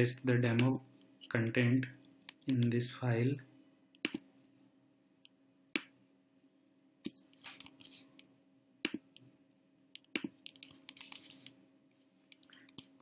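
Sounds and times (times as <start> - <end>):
faint steady hum: 0.0 - 13.0
mouse and keyboard clicks: 10.0 - 11.6.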